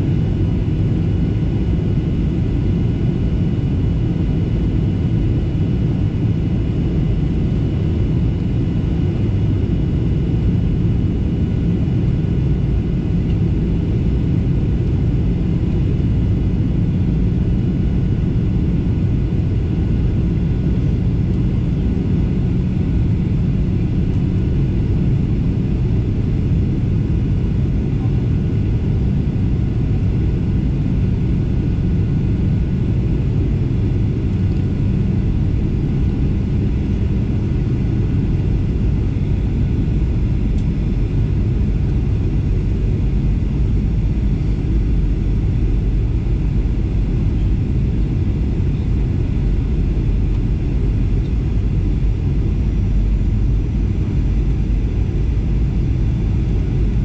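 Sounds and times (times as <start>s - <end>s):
engine and airflow rumble: 0.0s - 57.0s
faint steady whine: 0.0s - 57.0s.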